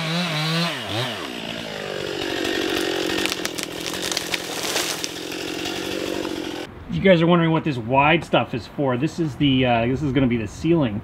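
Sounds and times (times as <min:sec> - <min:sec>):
gas chainsaw running: 0:00.0 - 0:06.7.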